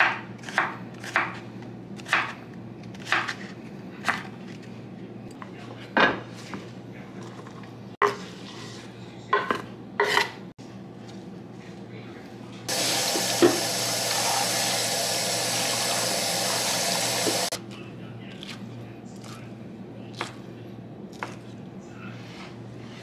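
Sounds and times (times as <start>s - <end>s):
faucet running into sink: 12.7s - 17.6s.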